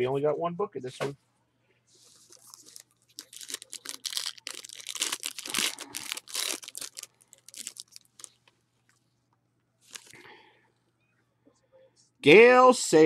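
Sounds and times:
plastic wrapper crinkling and tearing: 2.2 - 8.5, 9.8 - 10.2.

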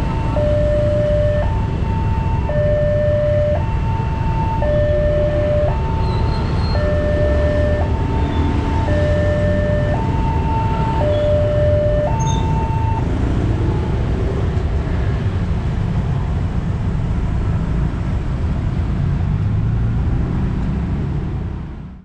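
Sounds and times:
level crossing two-tone alarm: 0.0 - 13.0
motorcycle engines: 0.0 - 22.0.

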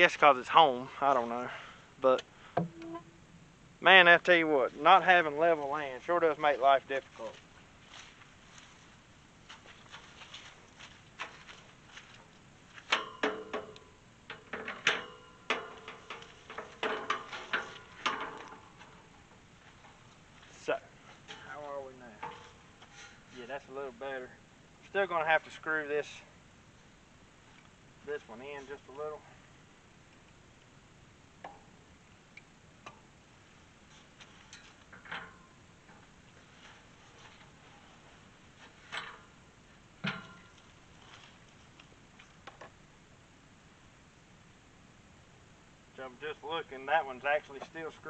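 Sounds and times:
metal gate clanking and rattling: 12.9 - 19.1, 21.2 - 23.3, 34.4 - 36.1, 38.8 - 39.4, 40.0 - 40.6.

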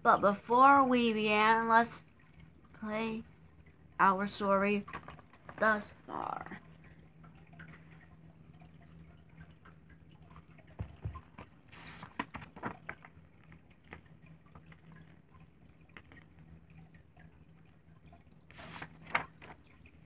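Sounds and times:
steady low hum: 0.0 - 20.0
comic book pages rustling: 11.4 - 13.1, 18.5 - 19.6.

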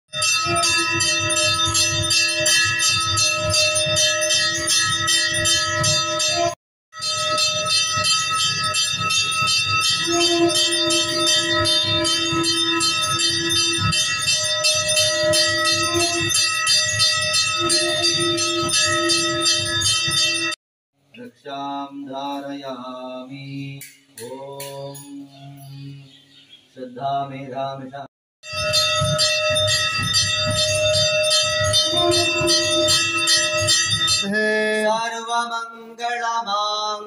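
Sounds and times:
temple bell ringing rapidly: 0.1 - 20.6, 28.4 - 35.7.

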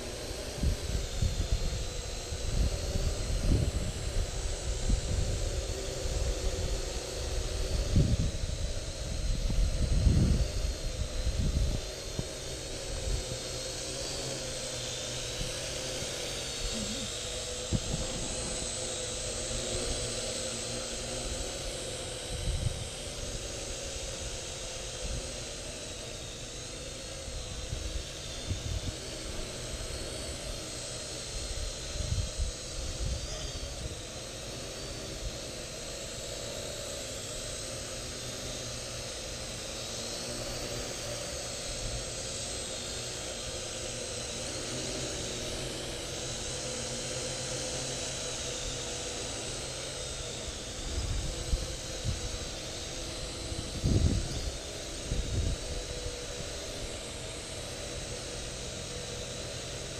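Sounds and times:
quadcopter motors whining: 0.0 - 59.9.

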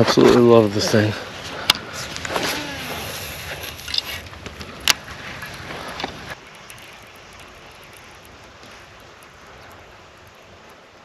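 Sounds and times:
faint steady wind: 0.0 - 11.0
fishing rod handling rustle: 1.3 - 11.0.

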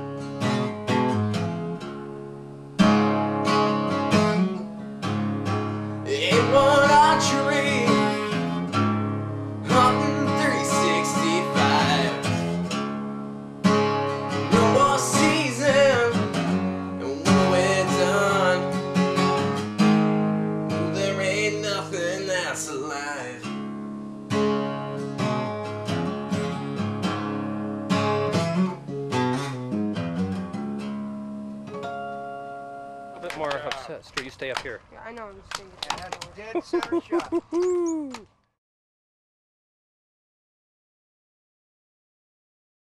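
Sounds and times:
acoustic guitar strumming: 0.0 - 35.2
man singing: 6.0 - 8.6, 9.6 - 12.6, 14.4 - 16.4, 17.0 - 18.8, 20.8 - 23.5.

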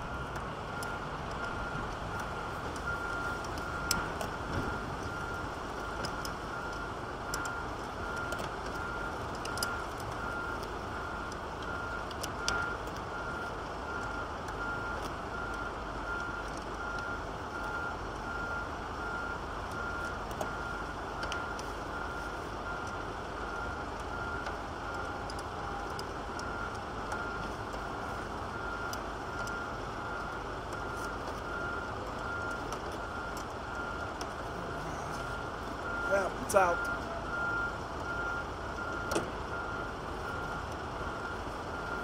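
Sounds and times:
high electronic beeps: 29.4 - 42.0.

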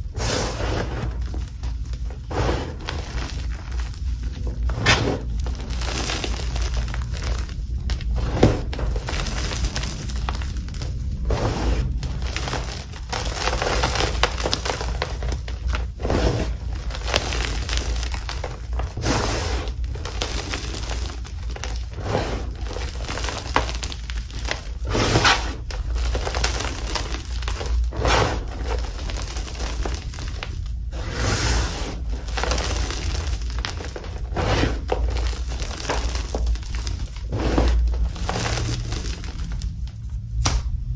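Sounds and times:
hands crushing chalk blocks: 0.0 - 40.8.

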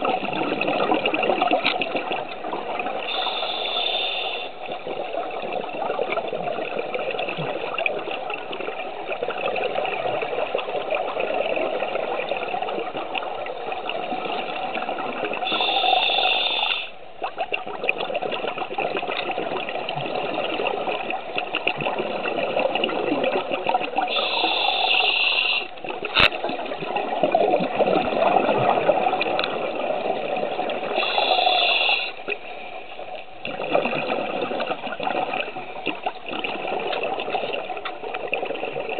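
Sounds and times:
bubbling exhalations underwater: 0.0 - 3.4, 17.2 - 32.4, 33.4 - 38.9
hissing breath through regulator: 3.0 - 4.7, 15.4 - 17.0, 24.1 - 25.7, 30.9 - 32.3.

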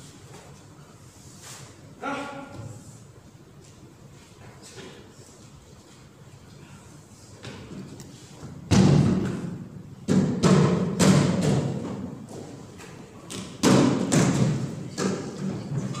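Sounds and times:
heavy thuds echoing in hall: 8.5 - 12.6, 13.2 - 16.0.

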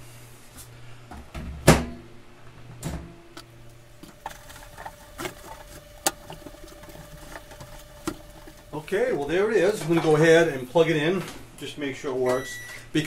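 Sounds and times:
sharp knock on microwave oven: 1.4 - 2.0.

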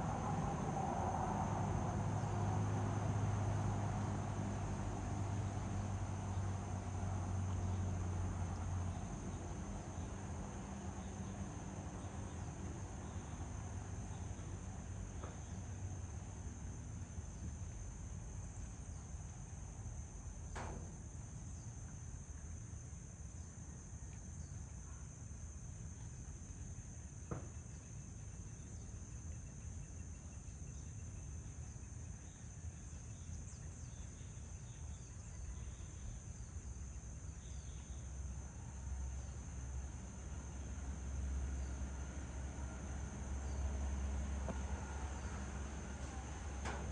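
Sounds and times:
low outdoor rumble: 0.0 - 24.0, 24.6 - 46.9
insects trilling: 17.1 - 46.9.

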